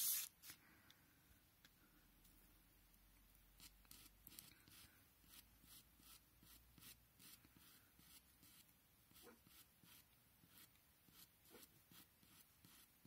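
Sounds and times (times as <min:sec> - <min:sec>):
pencil scratching on paper: 0:03.6 - 0:13.0.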